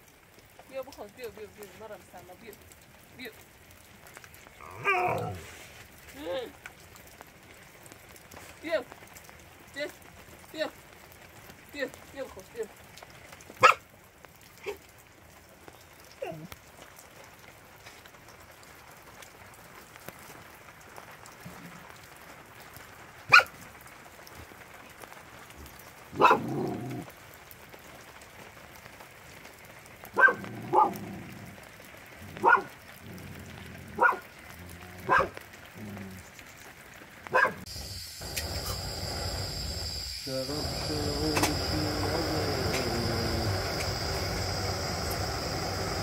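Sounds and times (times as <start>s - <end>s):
rain hissing: 0.0s - 46.0s
dog barking: 4.6s - 5.5s, 13.6s - 13.8s, 23.3s - 23.6s, 26.2s - 26.8s, 30.2s - 31.0s, 32.4s - 32.8s, 34.0s - 34.4s, 35.0s - 35.4s, 37.3s - 37.7s.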